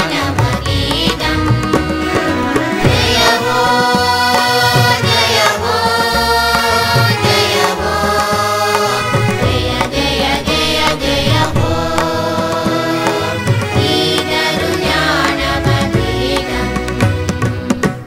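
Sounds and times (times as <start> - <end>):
steady drone: 2.3 - 15.6
hand drum strokes: 7.4 - 14.5.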